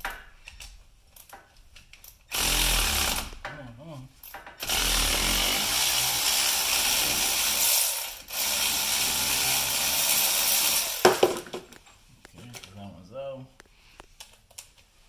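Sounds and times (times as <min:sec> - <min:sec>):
power wrench running: 0:02.3 - 0:03.4, 0:04.6 - 0:11.4.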